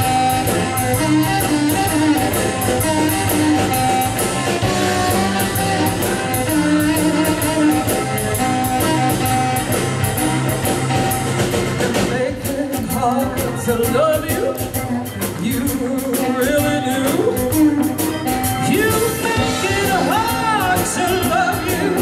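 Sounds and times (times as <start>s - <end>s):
harmonica: 0.0s - 11.8s
bass: 0.0s - 22.0s
drum kit cymbal beat: 0.0s - 22.0s
electric guitar: 0.0s - 22.0s
keyboard: 0.0s - 22.0s.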